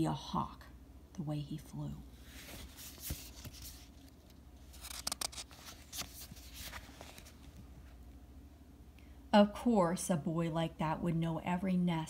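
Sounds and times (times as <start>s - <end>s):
book pages rustling: 2.2s - 8.0s.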